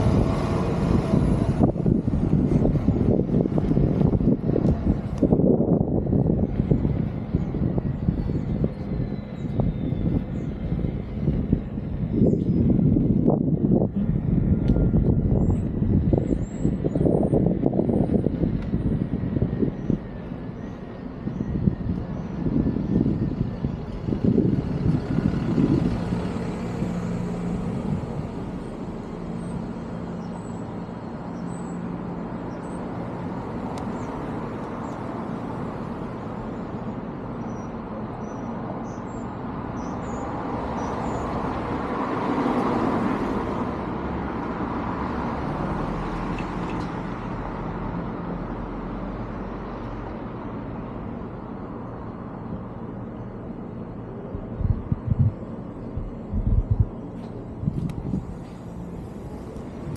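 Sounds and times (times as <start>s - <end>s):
vehicle passing: 0.0s - 7.8s, 21.7s - 36.8s
road and traffic noise: 0.0s - 59.9s.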